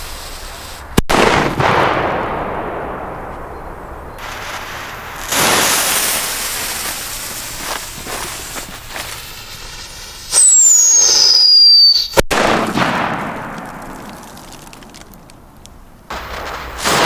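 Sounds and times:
firecracker bang: 1.0s - 3.3s, 4.2s - 9.2s, 12.1s - 15.2s, 16.1s - 17.0s
firecracker whistling: 4.2s - 12.2s
lit fuse hissing: 4.2s - 12.2s.

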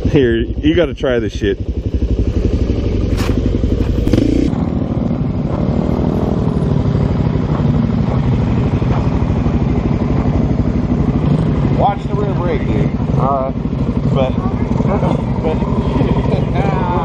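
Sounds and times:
engine idling: 0.0s - 17.0s
motorcycle engine running: 0.0s - 17.0s.

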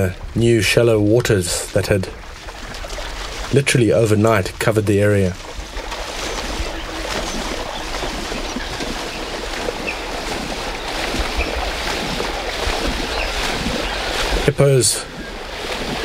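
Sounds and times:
water sloshing and splashing: 0.0s - 16.0s.

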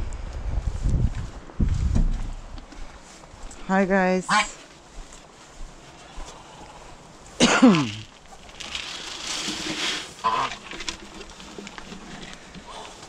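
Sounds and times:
grain pouring into trough: 7.7s - 12.8s.

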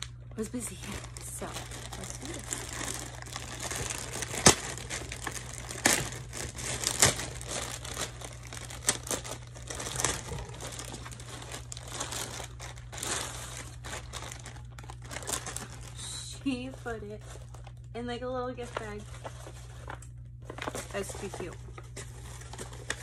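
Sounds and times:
paper packaging crinkling: 0.0s - 23.0s.

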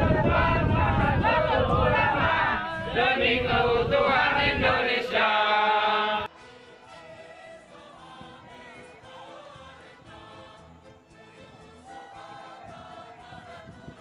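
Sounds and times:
men chanting together: 0.0s - 6.3s
choral music: 0.0s - 14.0s.

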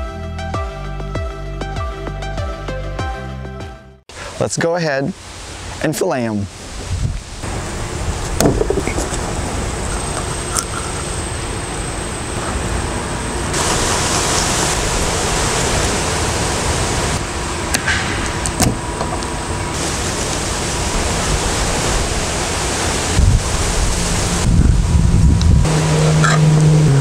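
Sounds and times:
loud outdoor rushing noise: 6.5s - 27.0s.

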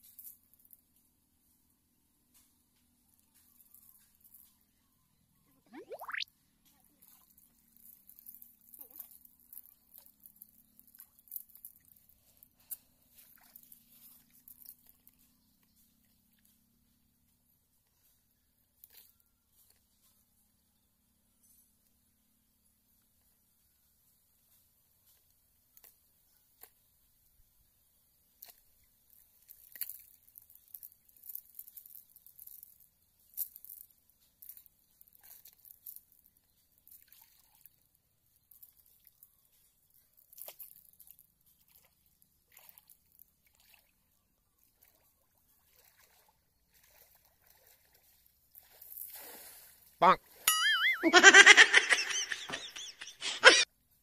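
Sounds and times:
small water splashes and drips: 5.7s - 6.2s, 6.8s - 16.5s, 28.2s - 49.9s
water dripping and splashing: 5.7s - 6.2s, 40.4s - 43.9s, 44.7s - 49.4s.

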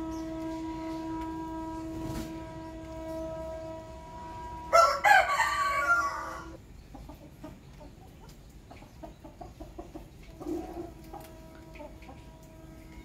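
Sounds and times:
rooster crowing: 3.0s - 6.6s.

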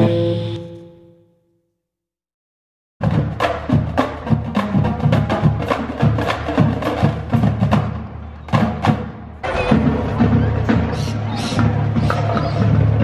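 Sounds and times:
marching drumline: 3.0s - 13.0s.

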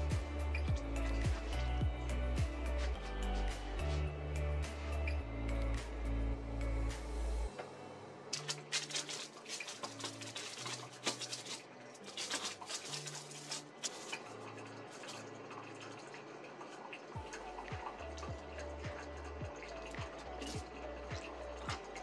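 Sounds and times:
soft background music: 0.0s - 22.0s.

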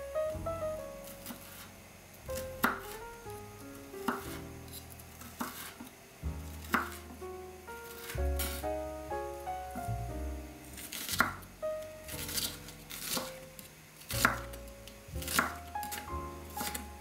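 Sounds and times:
soft background music: 0.0s - 17.0s
knife chopping on wooden board: 2.6s - 3.0s, 4.1s - 4.4s, 5.2s - 5.9s, 6.6s - 7.1s, 10.8s - 11.4s, 12.2s - 13.4s, 14.1s - 14.6s, 15.2s - 16.9s.

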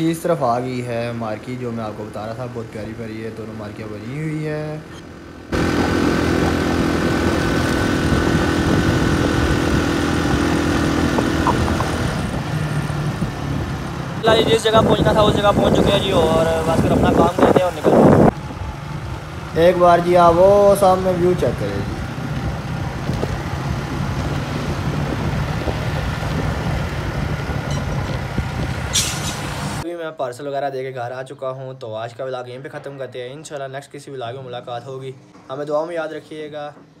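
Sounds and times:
road and wind noise: 0.0s - 29.9s
vehicle engine droning: 0.6s - 29.8s.

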